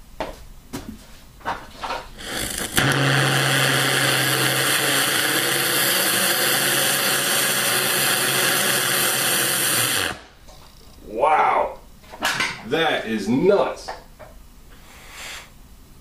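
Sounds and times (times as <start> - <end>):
rocket engine crackling and roaring: 2.2 - 10.3
low steady hum: 10.2 - 16.0.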